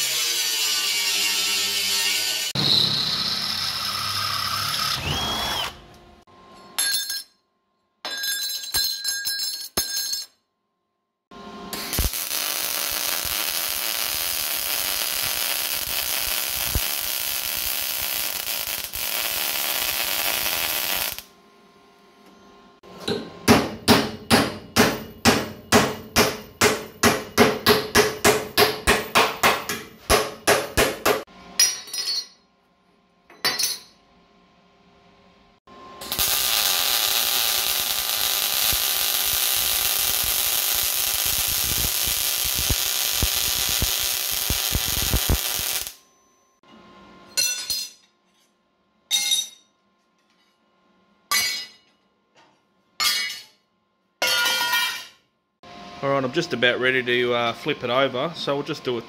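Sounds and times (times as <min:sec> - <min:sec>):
welder welding: 0:00.0 - 0:06.0, 0:11.6 - 0:21.3, 0:36.0 - 0:46.0
electric drill running: 0:02.5 - 0:06.0.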